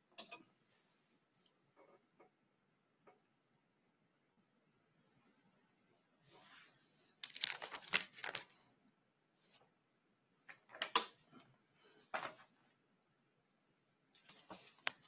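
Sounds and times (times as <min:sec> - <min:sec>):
handling rustle: 0:06.4 - 0:08.7.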